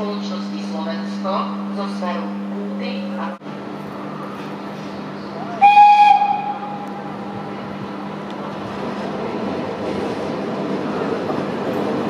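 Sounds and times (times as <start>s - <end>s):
rail noise of locomotive: 0.0s - 12.0s
locomotive horn blast: 5.6s - 6.9s.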